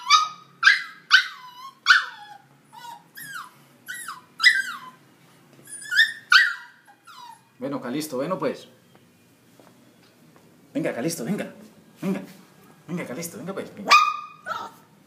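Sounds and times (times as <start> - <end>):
puppy whining: 0.0 - 7.6, 13.9 - 15.0.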